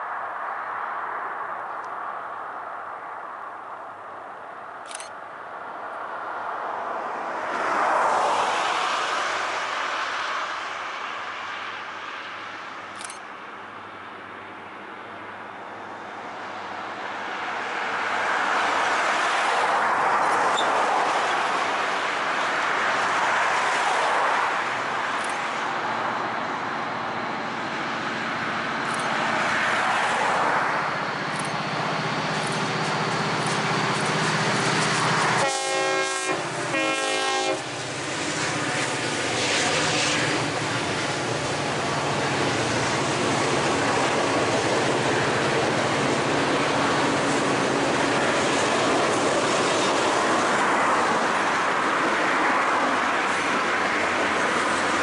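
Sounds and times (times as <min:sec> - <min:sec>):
train rumbling on rails: 0:03.1 - 0:55.0
diesel engine drone: 0:24.7 - 0:52.0
train horn blasts: 0:35.4 - 0:37.8.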